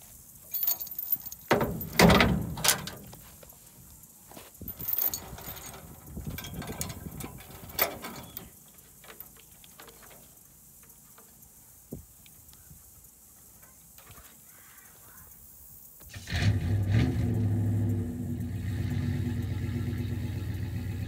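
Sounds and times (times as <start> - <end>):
chains rattling and clinking: 0.4 - 3.2, 4.6 - 10.3
sharp metal clank: 0.5 - 3.1
faint clicks: 4.8 - 12.7.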